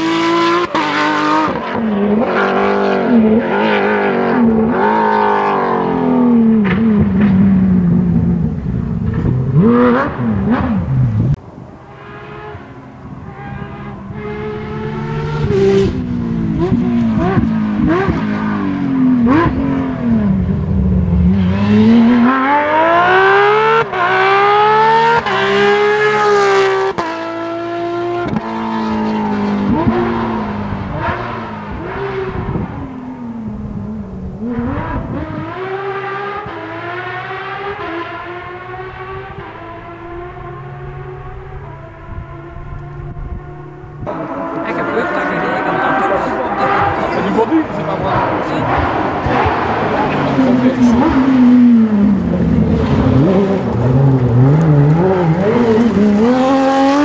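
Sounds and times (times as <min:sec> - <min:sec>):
rally car engines revving: 0:00.0 - 0:57.0
car accelerating past: 0:11.9 - 0:57.0.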